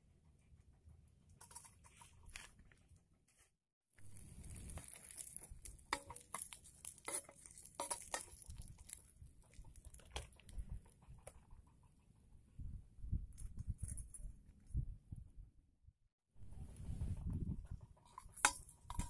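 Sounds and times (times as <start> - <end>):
metal spatula scraping a frying pan: 5.9 - 8.4
wind rumble on microphone: 12.4 - 15.6, 16.4 - 18.0.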